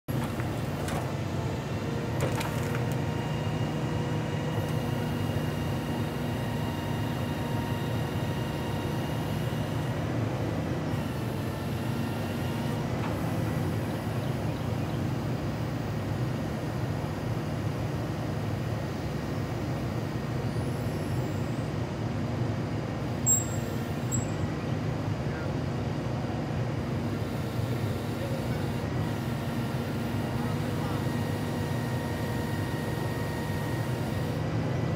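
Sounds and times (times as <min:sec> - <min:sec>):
truck engine and hydraulics running: 0:00.0 - 0:34.9
thin high whine: 0:23.2 - 0:24.5.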